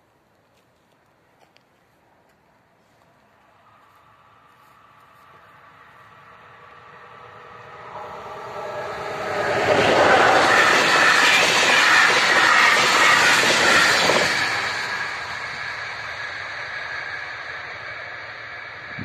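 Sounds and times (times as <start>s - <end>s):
train passing at speed: 2.6s - 19.0s.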